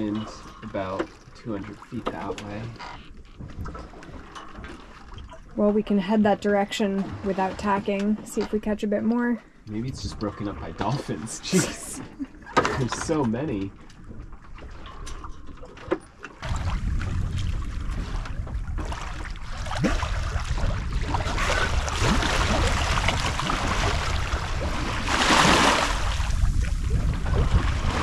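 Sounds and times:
water rushing along hull: 0:00.0 - 0:28.0
wind buffeting microphone: 0:16.4 - 0:28.0.

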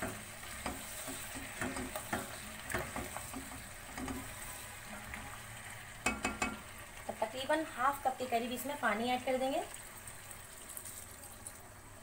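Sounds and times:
spatula scraping and knocking pan: 0:00.0 - 0:05.1
food sizzling in oil: 0:00.0 - 0:12.0.

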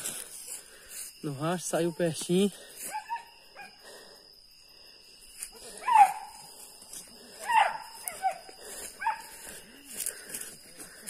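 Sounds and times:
dog barking: 0:02.9 - 0:03.8, 0:05.8 - 0:06.4, 0:07.4 - 0:09.3.

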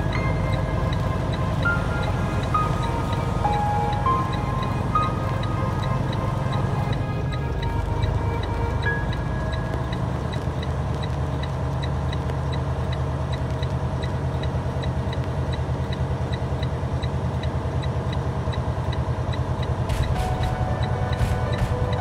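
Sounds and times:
diesel truck engine running: 0:00.0 - 0:22.0.

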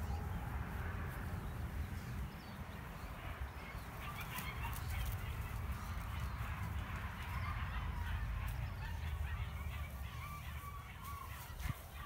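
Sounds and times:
faint high animal calls: 0:07.2 - 0:12.0.

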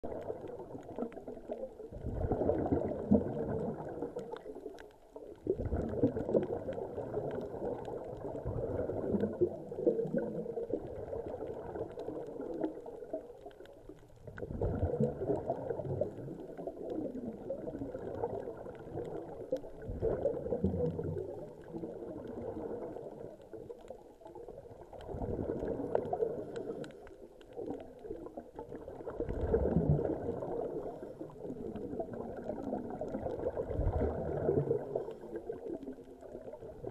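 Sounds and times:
diver exhaling bubbles: 0:00.0 - 0:04.4, 0:05.4 - 0:12.7, 0:14.3 - 0:23.2, 0:25.0 - 0:27.0, 0:28.8 - 0:35.8.

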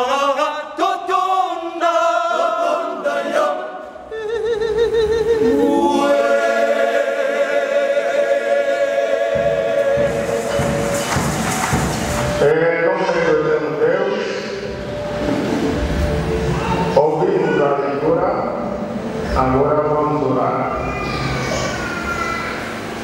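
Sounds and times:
men's choir singing a cappella: 0:00.0 - 0:12.5.

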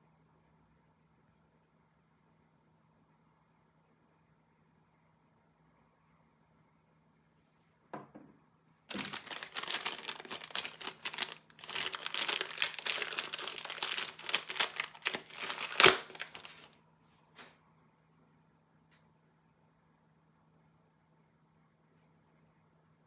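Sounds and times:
plastic bag crinkling: 0:08.9 - 0:16.8.

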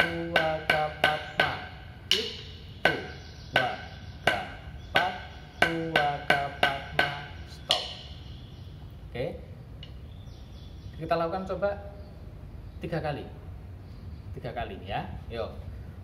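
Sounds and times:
drumsticks striking practice pad: 0:00.0 - 0:08.4.

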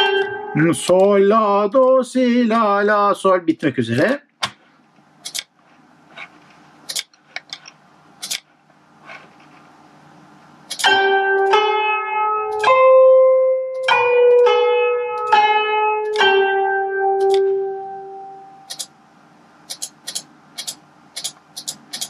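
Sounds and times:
plucked zither-like melody: 0:00.0 - 0:00.9, 0:10.8 - 0:18.7
sharp clicks: 0:05.2 - 0:05.5, 0:18.7 - 0:18.9, 0:19.7 - 0:22.0.

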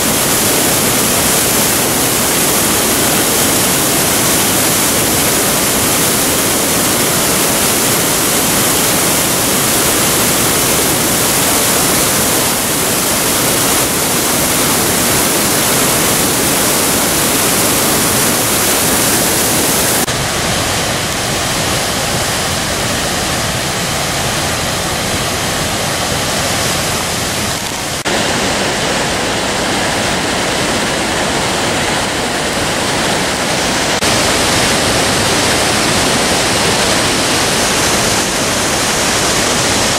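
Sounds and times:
waterfall rushing over rock: 0:00.0 - 0:39.9.

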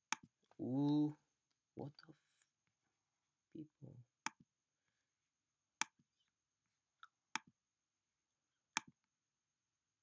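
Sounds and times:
computer mouse clicking: 0:00.0 - 0:00.3.

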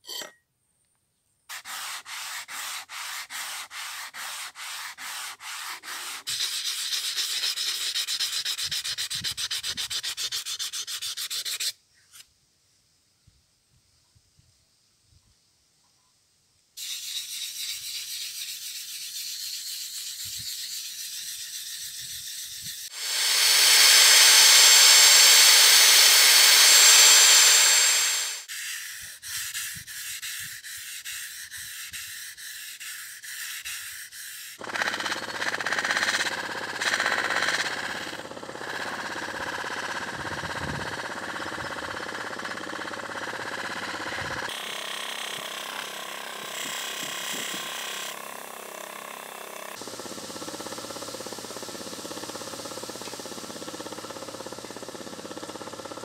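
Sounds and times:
cloth rubbing steel blade: 0:00.0 - 0:00.4, 0:01.5 - 0:12.3, 0:16.8 - 0:49.8.

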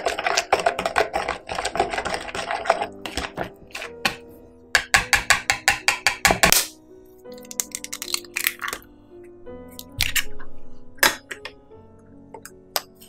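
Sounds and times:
whisk clattering in plastic bowl: 0:00.0 - 0:04.2, 0:04.8 - 0:06.5.

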